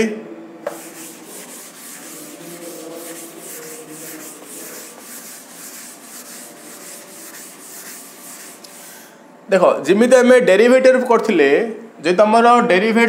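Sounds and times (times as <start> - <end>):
duster wiping chalkboard: 0.7 - 9.2.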